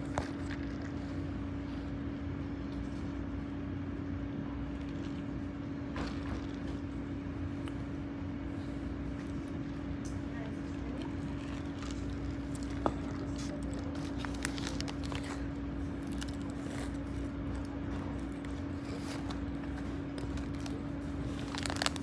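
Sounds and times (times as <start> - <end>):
steady tonal hum: 0.0 - 22.0.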